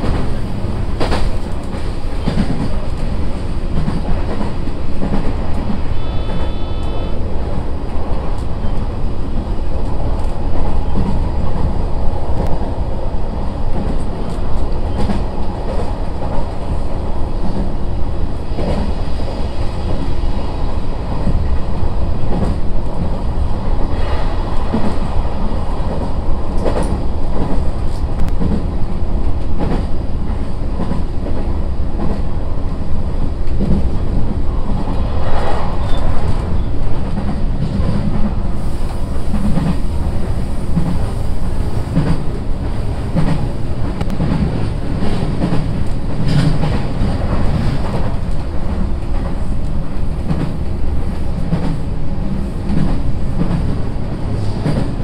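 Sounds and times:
train wheels rumbling on rail: 0.0s - 55.0s.

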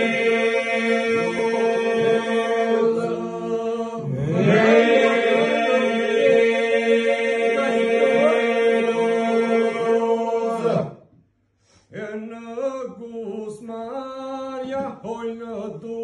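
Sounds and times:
men singing polyphonic drone: 0.0s - 10.9s
solo voices singing melody: 0.0s - 11.2s.

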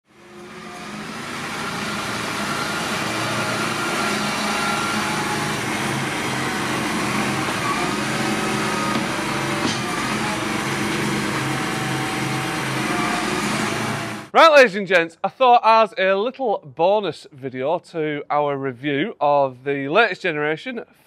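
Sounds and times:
diesel tractor engine under load: 0.0s - 14.4s
front loader tipping manure: 0.2s - 14.3s.

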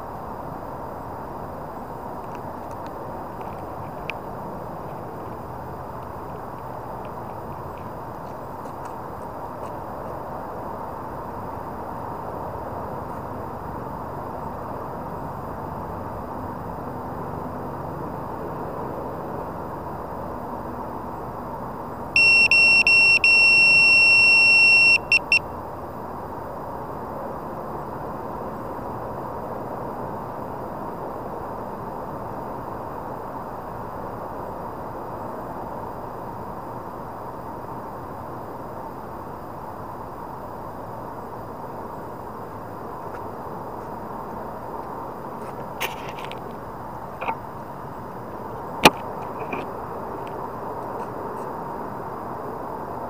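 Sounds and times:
high electronic beep: 22.2s - 25.4s.

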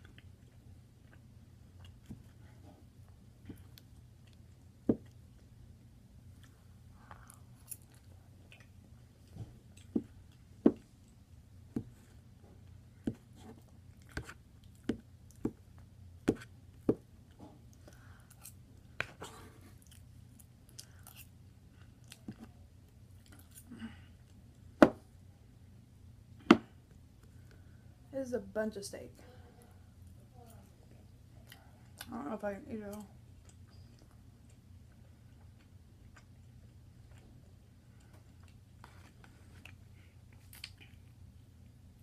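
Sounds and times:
chewing: 6.3s - 10.5s, 17.7s - 24.4s, 33.3s - 41.2s.

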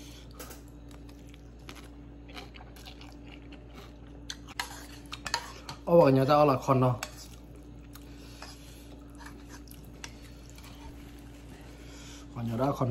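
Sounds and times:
steady low hum: 0.0s - 12.9s
man chewing noodles: 0.2s - 5.2s, 7.2s - 11.8s.

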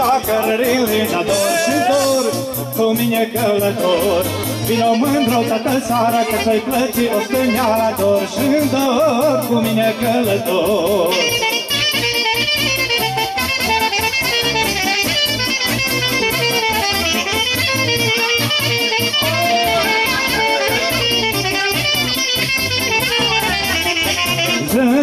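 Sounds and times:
regular beat: 0.0s - 25.0s
steady bass: 0.0s - 25.0s
saxophone fast ornamented melody: 3.8s - 9.0s, 11.0s - 25.0s.

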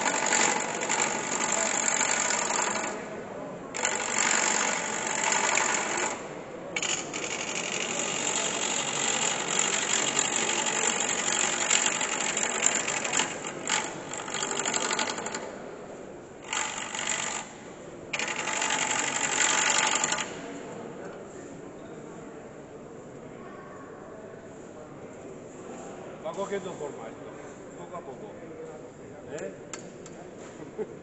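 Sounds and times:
gouge scraping wood on lathe: 6.8s - 14.8s.

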